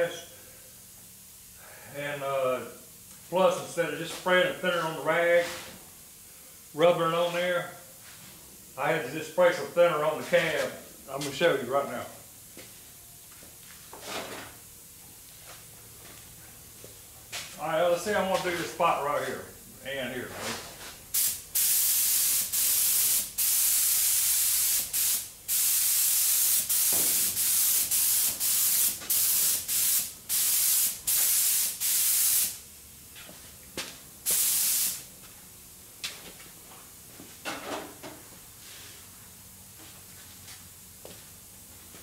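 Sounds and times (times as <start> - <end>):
spray gun hissing in bursts: 21.1 - 32.6, 34.2 - 35.1.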